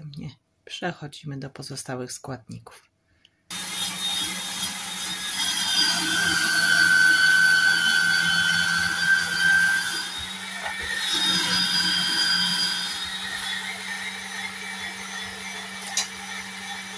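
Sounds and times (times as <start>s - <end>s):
electric grater motor hum: 3.5s - 16.9s.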